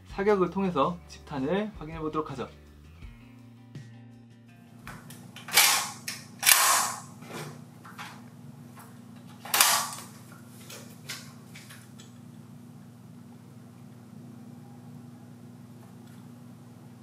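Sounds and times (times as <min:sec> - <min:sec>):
airsoft rifle shots: 0:05.5 - 0:07.2, 0:09.5 - 0:10.1.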